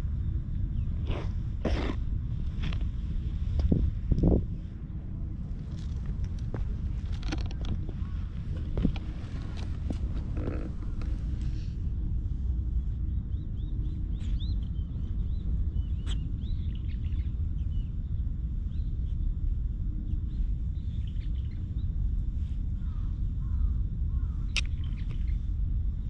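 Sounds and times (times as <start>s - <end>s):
wind rumble on microphone: 0.0s - 26.0s
small birds chirping: 12.8s - 19.4s, 20.0s - 22.2s, 22.8s - 25.5s.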